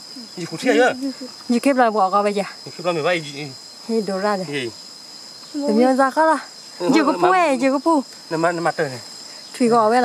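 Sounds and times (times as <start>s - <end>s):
insects shrilling: 0.0s - 10.0s
voices talking: 0.1s - 10.0s.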